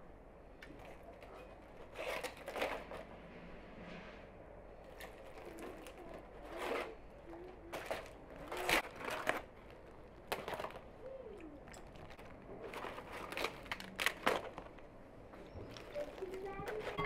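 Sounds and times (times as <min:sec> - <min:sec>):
flatbread crackling and rustling: 0:00.6 - 0:04.2, 0:04.8 - 0:17.0.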